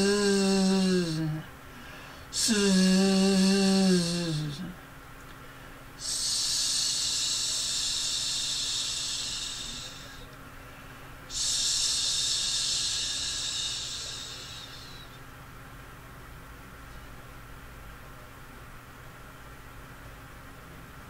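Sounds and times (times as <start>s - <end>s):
woman making long hissing sounds: 0.0s - 1.5s, 2.1s - 4.8s, 6.0s - 10.3s, 11.3s - 15.2s.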